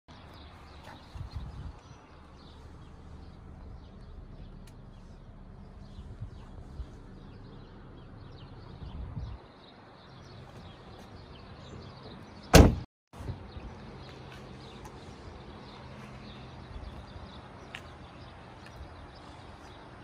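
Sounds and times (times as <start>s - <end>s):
car door shutting thud: 12.5s - 12.8s.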